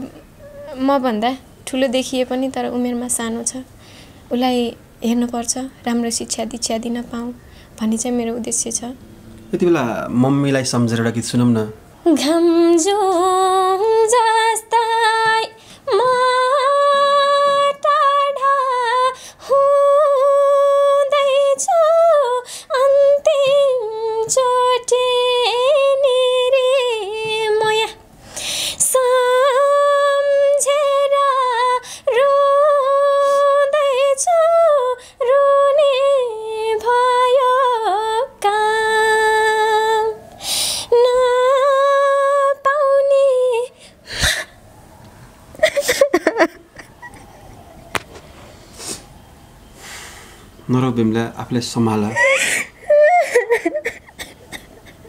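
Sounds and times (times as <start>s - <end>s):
woman singing unaccompanied: 0.0s - 3.7s, 4.3s - 9.1s, 12.0s - 28.1s, 28.7s - 43.8s, 52.7s - 55.0s.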